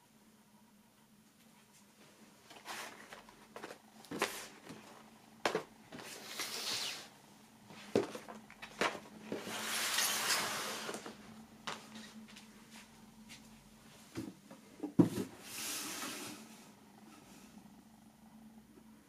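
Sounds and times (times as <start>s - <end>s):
box scraping across surface: 9.3s - 11.1s, 15.1s - 16.6s
cardboard boxes knocking on table: 14.2s - 15.3s.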